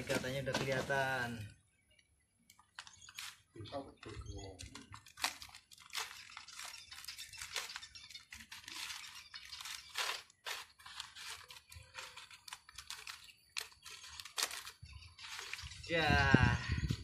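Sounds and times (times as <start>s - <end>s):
packing wrap crinkling and tearing: 2.7s - 3.5s, 4.8s - 15.7s.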